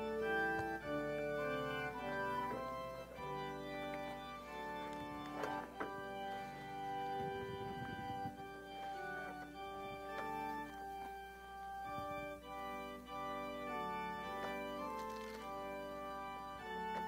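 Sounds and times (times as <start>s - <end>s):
soft organ chords: 0.0s - 17.0s
faint knocks and rustles: 3.4s - 11.2s.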